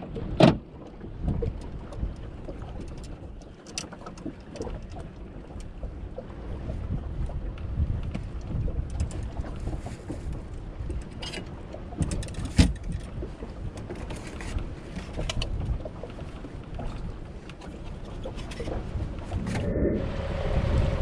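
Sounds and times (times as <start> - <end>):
wind buffeting microphone: 0.0 - 3.5, 4.2 - 21.0
fishing gear clicks and knocks: 1.3 - 5.8, 8.0 - 19.4.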